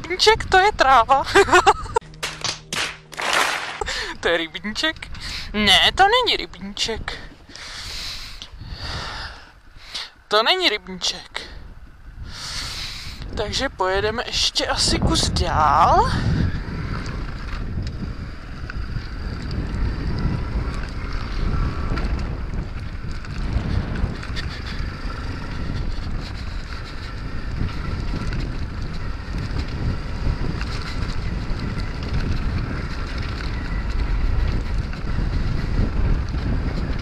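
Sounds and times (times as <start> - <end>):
wind buffeting microphone: 0.0 - 37.0
motorbike engine running: 15.6 - 37.0.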